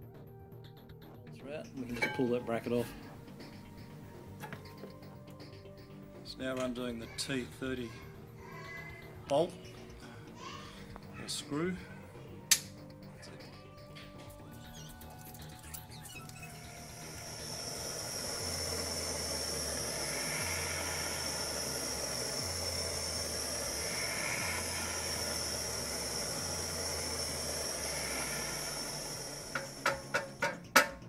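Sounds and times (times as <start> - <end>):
mallet striking metal rotor: 1.8 - 3.6, 17.0 - 31.0
gas torch hissing: 1.8 - 6.0, 15.0 - 30.9.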